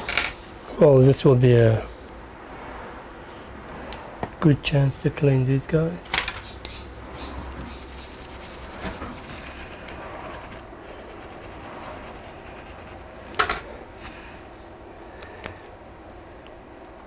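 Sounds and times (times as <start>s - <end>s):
light scraping and handling: 7.6s - 14.2s.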